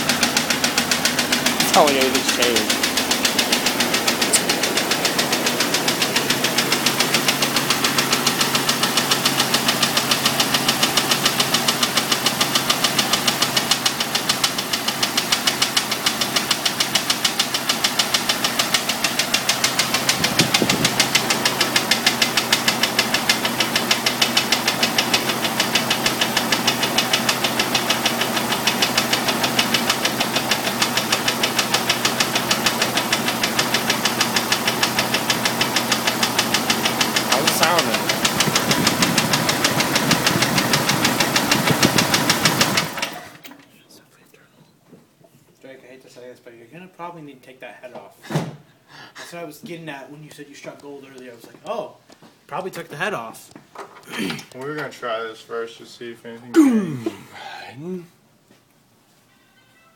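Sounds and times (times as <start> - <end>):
car engine idling with knock: 0.0 - 43.4.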